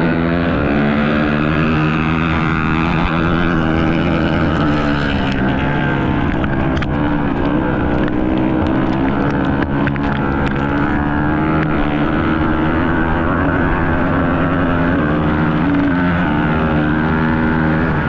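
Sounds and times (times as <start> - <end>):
motorcycle engine at high revs: 0.0 - 18.0.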